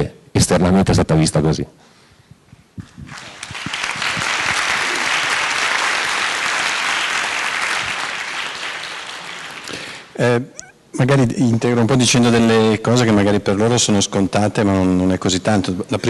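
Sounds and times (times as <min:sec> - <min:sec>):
audience applauding: 0:03.1 - 0:10.1.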